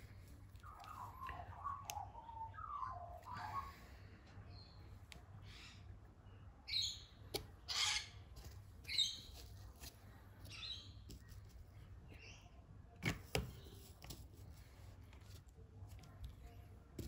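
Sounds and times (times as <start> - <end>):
bird chirping: 0.1 - 8.2, 10.4 - 11.1.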